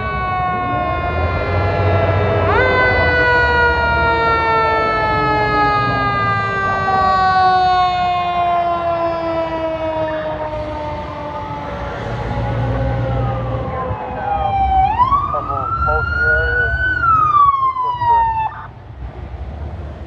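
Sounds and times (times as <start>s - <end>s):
fire engine siren wailing: 0.0s - 18.8s
truck engine rumbling: 9.8s - 20.0s.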